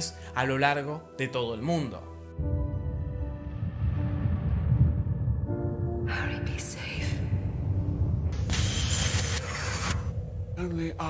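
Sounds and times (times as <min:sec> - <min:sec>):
deep rumble: 0:02.4 - 0:08.7, 0:09.5 - 0:11.0.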